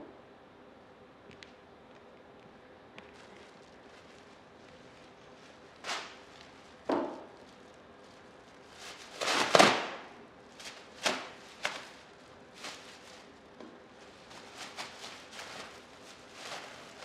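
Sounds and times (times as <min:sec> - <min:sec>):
rustling: 0:03.0 - 0:17.0
objects knocking on table: 0:06.9 - 0:07.3.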